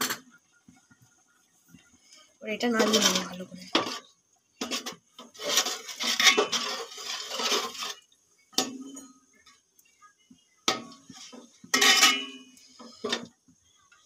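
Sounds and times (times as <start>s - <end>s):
spatula scraping metal pot: 2.5s - 9.2s, 10.7s - 13.3s.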